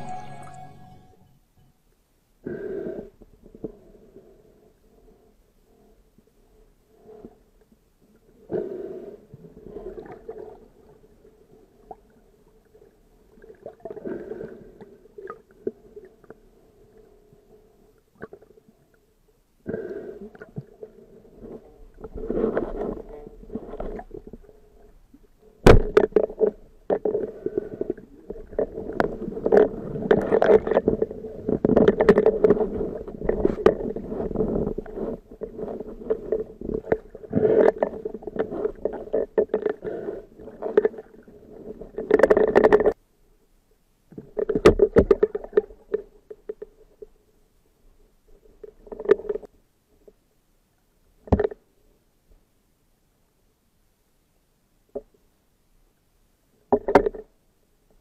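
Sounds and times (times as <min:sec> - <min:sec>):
steady churning water: 0:20.2 - 0:43.0.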